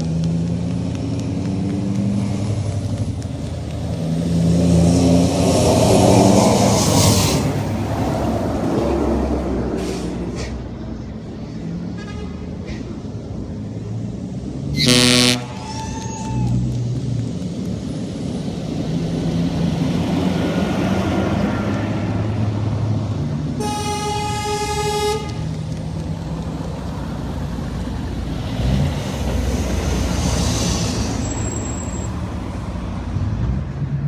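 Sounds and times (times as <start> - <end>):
truck engine passing by: 0.0 - 34.0
loud truck horn blast: 14.8 - 15.6, 23.6 - 25.4.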